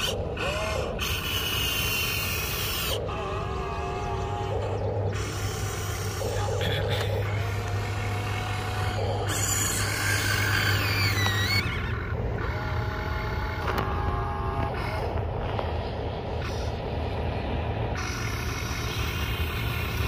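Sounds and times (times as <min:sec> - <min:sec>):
electric motors and gears whining: 0:00.0 - 0:20.0.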